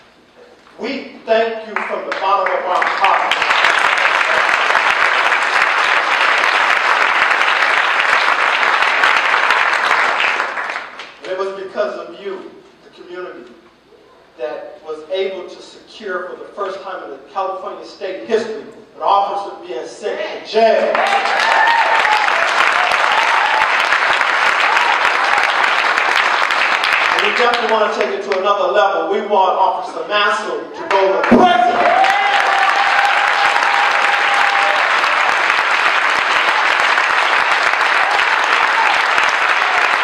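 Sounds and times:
audience applauding: 1.8 - 11.3, 20.8 - 28.3, 30.9 - 40.0.

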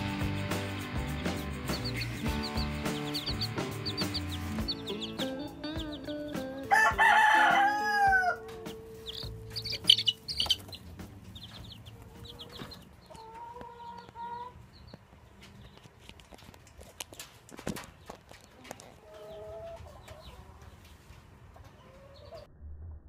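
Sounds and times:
chicks peeping: 0.0 - 22.5
rooster crowing: 6.6 - 8.6.

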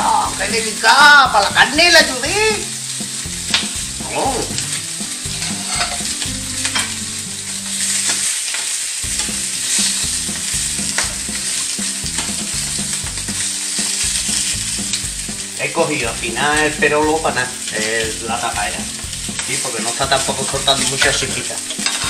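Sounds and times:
sausages sizzling in frying pan: 0.0 - 22.0
metal tongs clicking on pan: 3.5 - 3.7, 5.4 - 7.0, 20.8 - 22.0.

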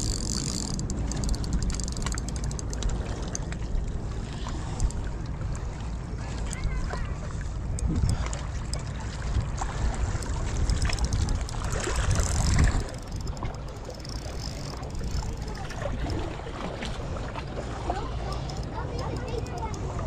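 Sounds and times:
wind rumbling on microphone: 0.0 - 20.0
water washing against rocks: 9.1 - 20.0.

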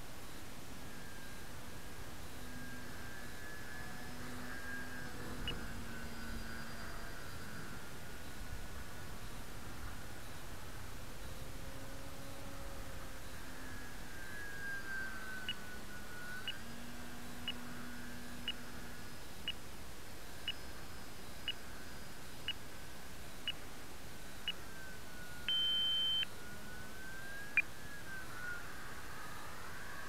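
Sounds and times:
model plane motor whine: 0.8 - 19.4, 24.6 - 30.0
short electronic beeps: 25.4 - 26.3.

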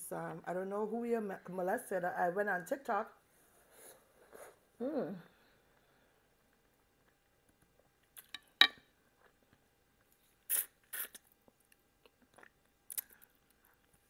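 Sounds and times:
mouth eating sounds: 10.4 - 11.3, 12.0 - 13.4
wet sucking and slurping: 10.4 - 11.3.

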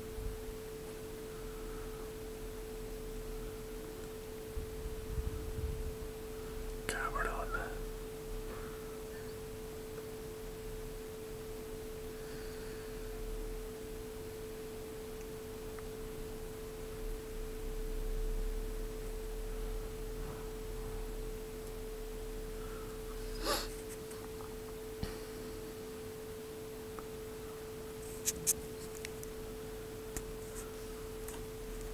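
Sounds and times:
steady hum: 0.0 - 31.9
weaker lower tone: 0.0 - 31.9.

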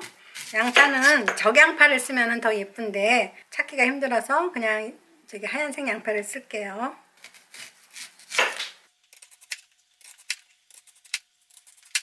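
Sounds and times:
knife slicing onion on board: 7.2 - 8.8.

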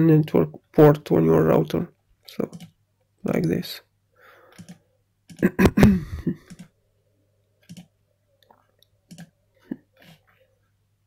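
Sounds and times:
computer mouse clicking: 2.4 - 2.8, 4.5 - 5.4, 6.4 - 6.8, 7.6 - 9.4.

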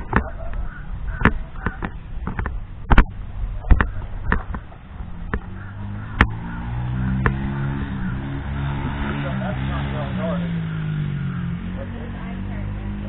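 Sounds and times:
low background rumble: 0.0 - 13.0
camera knocks and thumps: 1.2 - 5.5.

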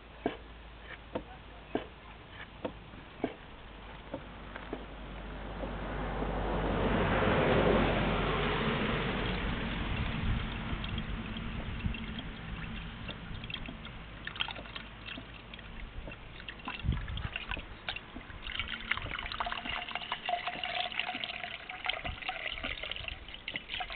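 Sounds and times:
hose water splashing into bucket: 9.2 - 23.9
water falling into metal jug: 9.2 - 23.9.

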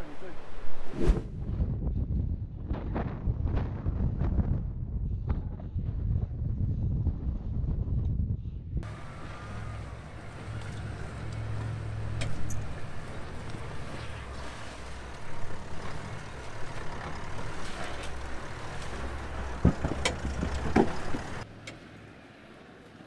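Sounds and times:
vehicle engine running low: 8.8 - 23.0
sharp knocks from vehicle: 19.0 - 21.4.

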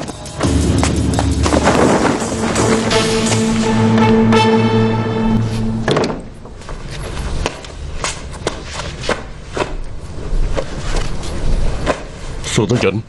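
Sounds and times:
held music chord: 0.4 - 7.1
low rumble: 0.4 - 7.3.

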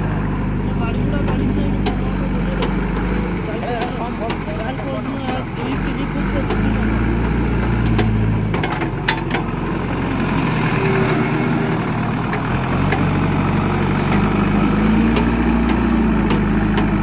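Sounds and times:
diesel engine running: 0.0 - 17.0
sharp knocks: 15.0 - 17.0.

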